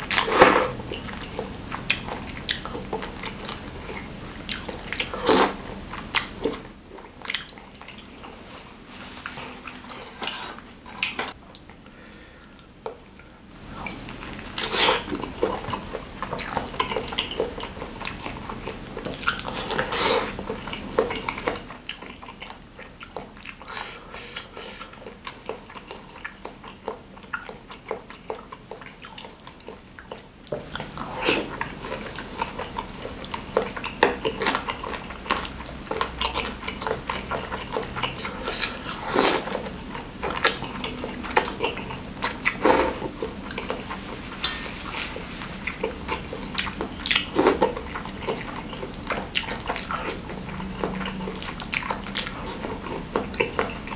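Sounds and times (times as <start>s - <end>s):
wet chewing: 0.0s - 11.8s, 12.4s - 53.9s
slurping noodles: 0.1s - 1.6s, 5.0s - 5.7s, 37.2s - 53.9s.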